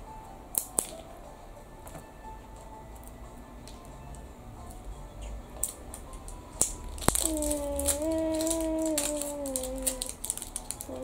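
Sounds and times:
plastic egg clicking open: 0.5 - 1.0, 5.6 - 11.0
foil wrapper crinkling: 6.6 - 11.0
child humming: 7.2 - 10.2.

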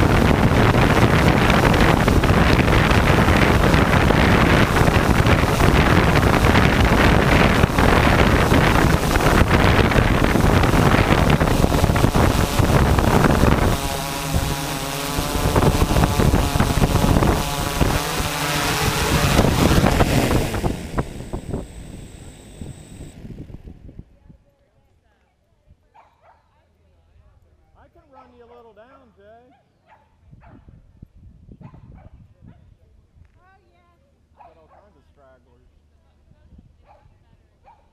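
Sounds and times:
wind rumbling on microphone: 0.0 - 24.5, 30.2 - 33.4
low steady hum: 0.0 - 24.7.

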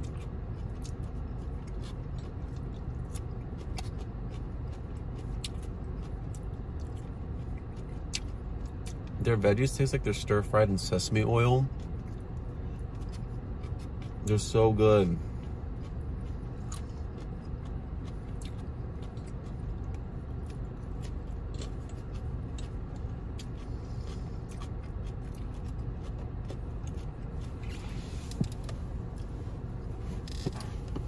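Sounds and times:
chewing and mouth clicks: 0.0 - 9.6, 10.7 - 29.3
low hum: 0.0 - 31.0.

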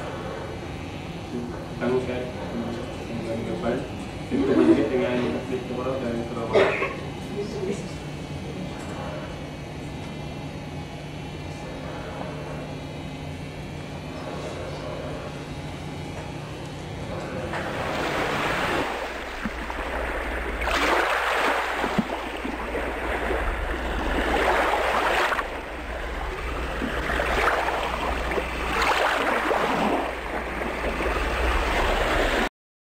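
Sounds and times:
low hum of room noise: 0.0 - 32.5
waves washing in: 17.6 - 32.5.

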